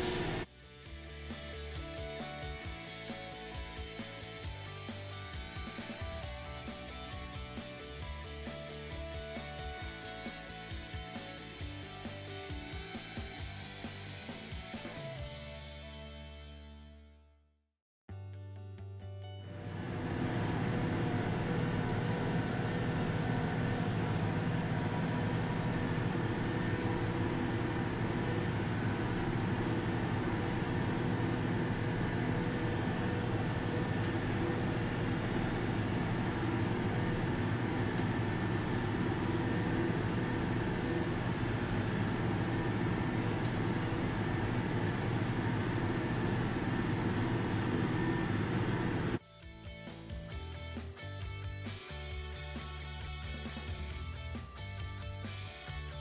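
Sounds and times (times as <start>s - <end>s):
tractor engine running under load: 19.6s - 49.2s.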